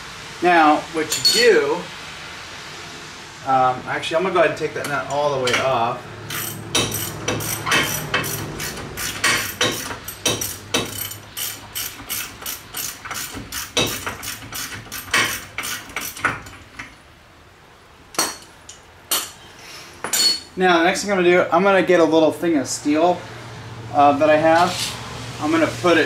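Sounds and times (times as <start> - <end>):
ratchet wrench clicking: 6.3 - 16.6
metal clink: 20.1 - 20.5.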